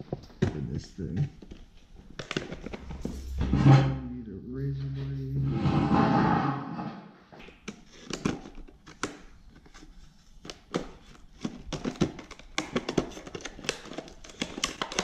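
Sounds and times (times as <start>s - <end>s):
plastic packaging crinkling: 7.9s - 15.0s.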